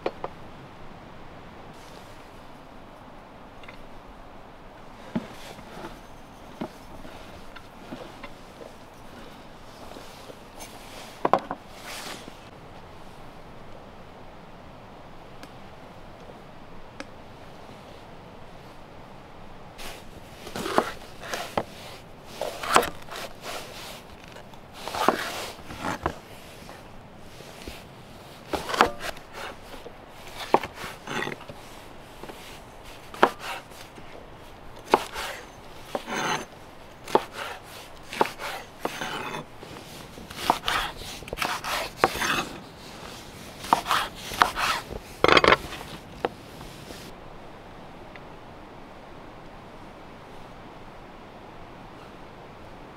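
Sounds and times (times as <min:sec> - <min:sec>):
knife chopping on wooden board: 0:28.6 - 0:29.6, 0:33.2 - 0:33.6, 0:34.9 - 0:36.4, 0:37.1 - 0:39.4, 0:40.3 - 0:42.5, 0:43.6 - 0:45.8.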